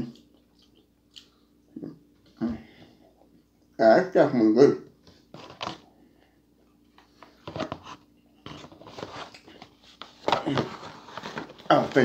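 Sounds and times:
quiet chewing: 0.0s - 2.4s
faint steady hum: 0.0s - 12.0s
foil pouch rustling and crinkling: 8.6s - 12.0s.

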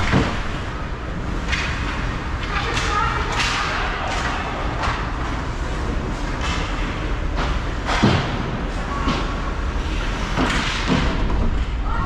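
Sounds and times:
hockey sticks and puck knocking: 1.4s - 5.3s, 6.2s - 9.3s, 10.4s - 11.5s.

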